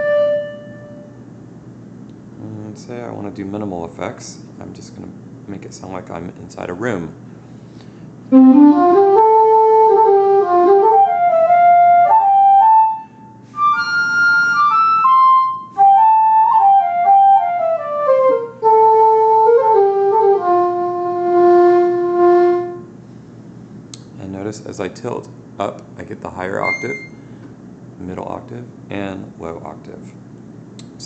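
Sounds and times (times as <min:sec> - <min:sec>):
flute melody: 0:00.0 - 0:01.1, 0:08.3 - 0:22.8, 0:26.6 - 0:27.2.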